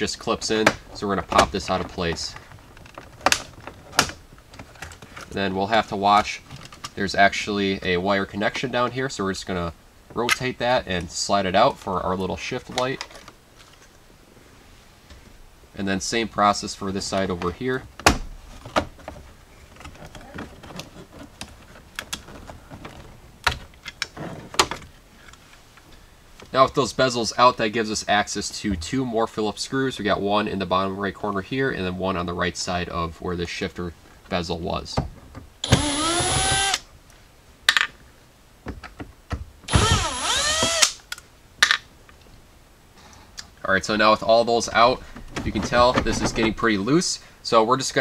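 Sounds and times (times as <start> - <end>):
cordless drill whirring: 35.6 - 36.8, 39.7 - 41.0.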